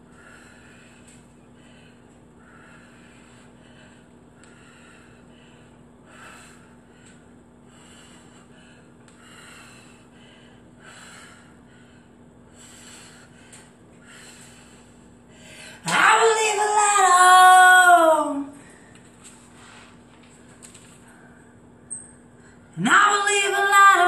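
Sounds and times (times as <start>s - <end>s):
woman breathing hard: 0.0s - 15.9s.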